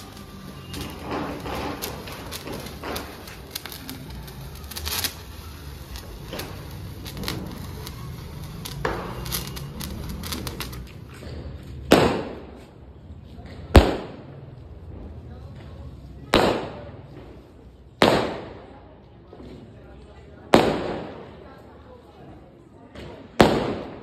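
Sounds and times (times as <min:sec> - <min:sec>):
sparkler fizzing and crackling: 0:00.0 - 0:11.1
loud firework bangs: 0:00.0 - 0:12.7, 0:13.7 - 0:14.4, 0:16.3 - 0:17.4, 0:18.0 - 0:18.8, 0:20.5 - 0:21.4, 0:23.1 - 0:24.0.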